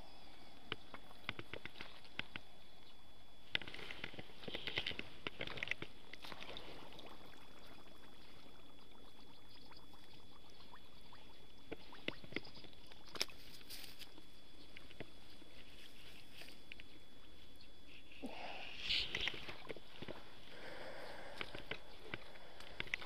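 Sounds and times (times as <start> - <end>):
small water splashes and drips: 5.5 - 13.6
rustling in wet grass: 13.2 - 14.2.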